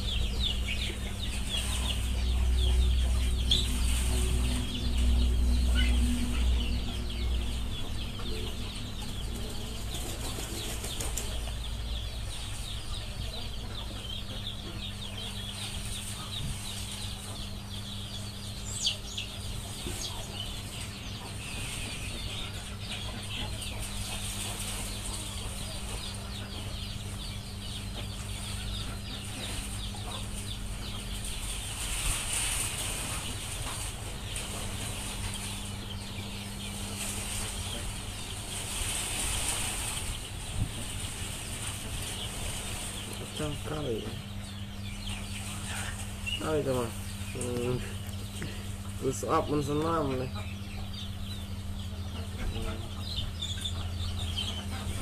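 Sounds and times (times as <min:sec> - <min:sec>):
low rumble: 0:00.0 - 0:10.3
small birds chirping: 0:00.0 - 0:55.0
steady low hum: 0:00.0 - 0:55.0.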